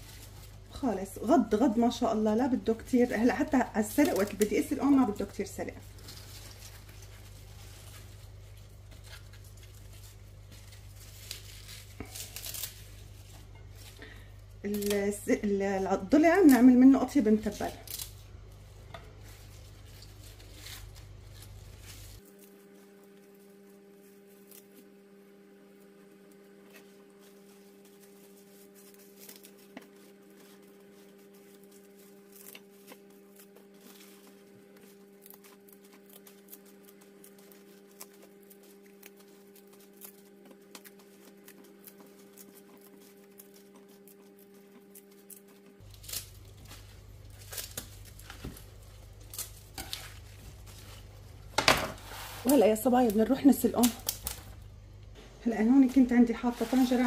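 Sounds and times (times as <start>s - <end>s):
rustling of leaves being handled: 0.0s - 54.8s, 55.4s - 57.0s
lower electrical hum: 0.0s - 57.0s
higher steady hum: 44.6s - 57.0s.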